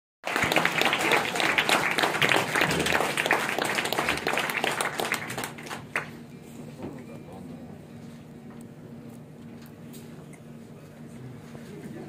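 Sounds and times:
audience applause: 0.2s - 6.2s.

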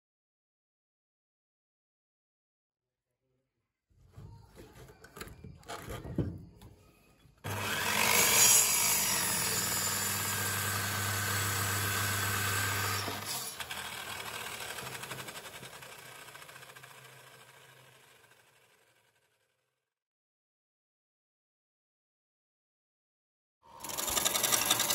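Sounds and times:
electric miter saw cutting: 7.4s - 19.4s, 23.7s - 24.9s.

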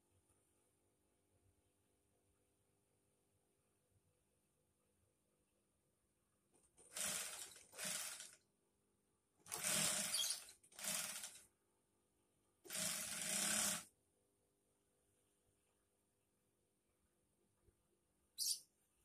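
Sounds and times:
sewing machine stitching: 6.8s - 8.4s, 9.4s - 11.5s, 12.6s - 13.9s.

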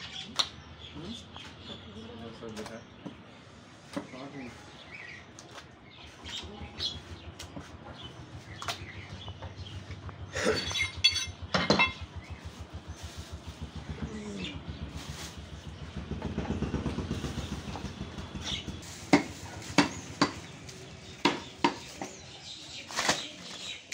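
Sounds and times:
engine running: 5.7s - 21.2s
sharp clattering knocks: 10.7s - 12.2s.

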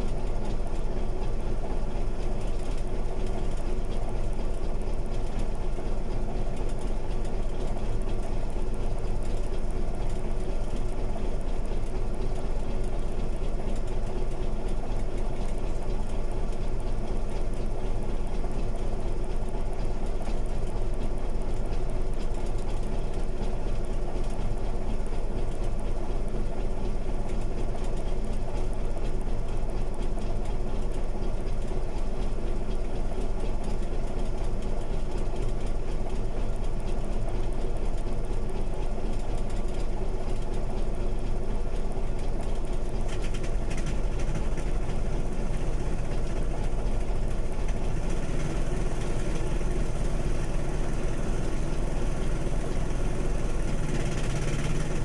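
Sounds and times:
bulldozer diesel engine droning: 41.2s - 55.0s.

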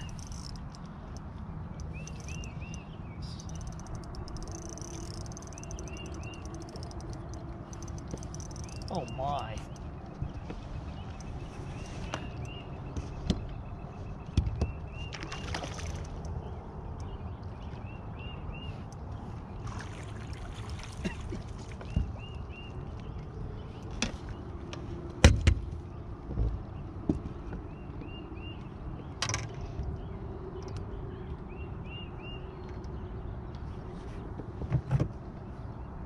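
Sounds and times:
water splashing and sloshing: 0.0s - 17.9s, 18.7s - 27.7s.

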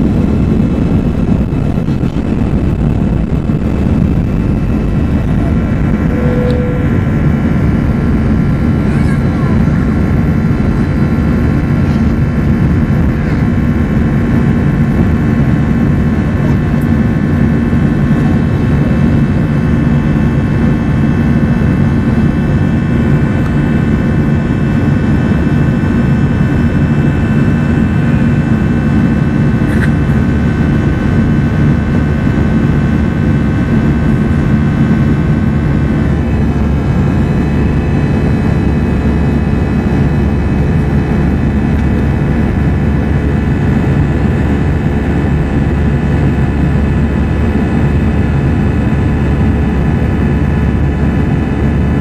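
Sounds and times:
jet engine and airflow noise: 0.0s - 52.0s
thin whining tones: 4.4s - 9.9s.

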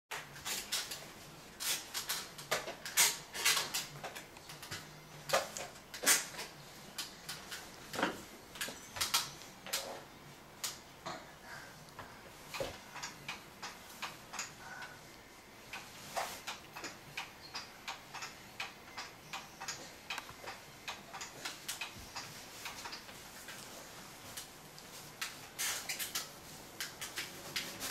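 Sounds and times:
baby swing clicking: 15.7s - 23.2s.

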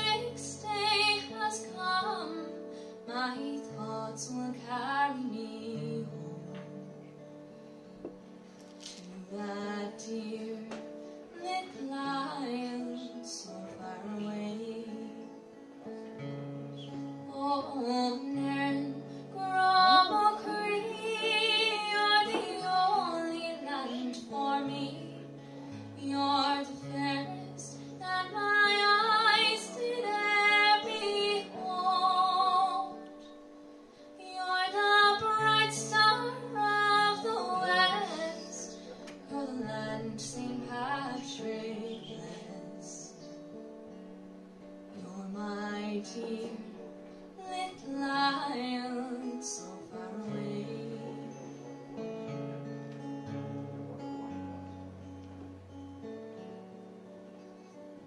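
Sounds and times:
woman singing: 0.0s - 6.9s, 8.9s - 15.4s, 16.8s - 33.4s, 34.1s - 43.4s, 44.9s - 51.6s
acoustic guitar: 0.0s - 58.0s.

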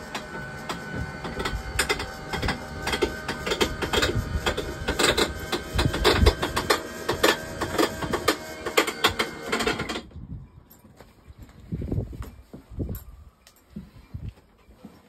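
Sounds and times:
hatch clicks and creaks: 0.0s - 8.0s
motor whirring: 0.0s - 10.1s.

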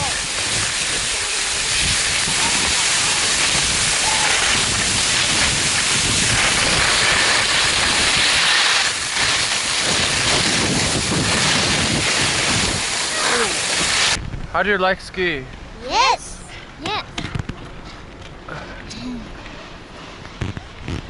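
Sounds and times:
skis sliding over snow: 0.0s - 14.2s
wind on microphone: 0.0s - 14.6s.

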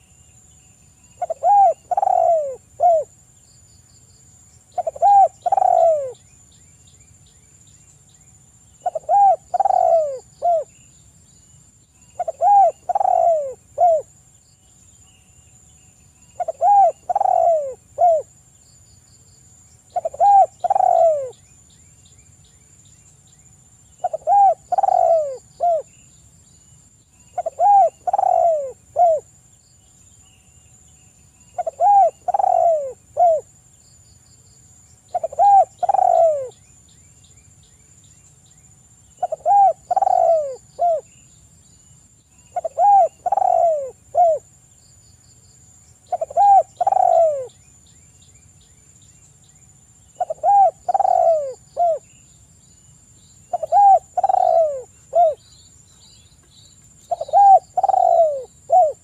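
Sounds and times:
dove cooing: 1.2s - 3.1s, 4.8s - 6.2s, 8.8s - 10.7s, 12.2s - 14.1s, 16.4s - 18.3s, 19.9s - 21.4s, 24.0s - 25.9s, 27.4s - 29.3s, 31.6s - 33.5s, 35.1s - 36.5s, 39.2s - 41.1s, 42.6s - 44.5s, 46.1s - 47.5s, 50.2s - 52.0s, 53.5s - 55.4s, 57.1s - 59.0s.

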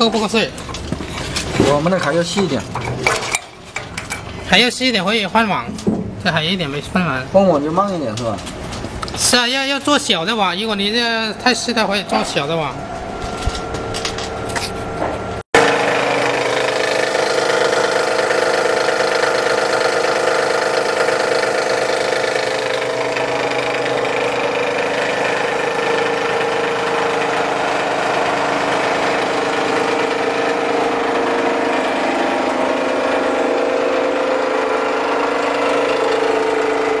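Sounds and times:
plastic crusher motor humming: 8.6s - 37.0s.

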